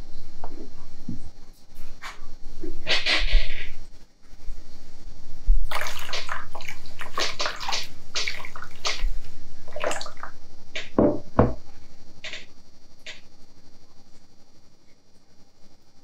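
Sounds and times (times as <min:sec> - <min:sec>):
liquid glaze pouring and splashing: 0:05.7 - 0:10.9
dull knocks: 0:10.8 - 0:11.6.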